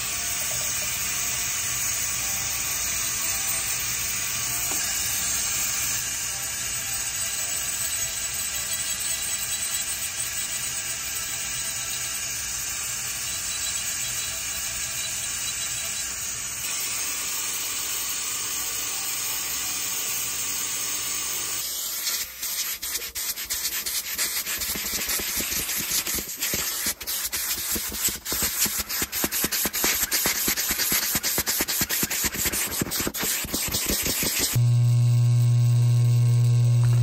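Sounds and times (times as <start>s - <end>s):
dental handpiece grinding stone: 4.5s - 16.8s, 22.3s - 34.6s.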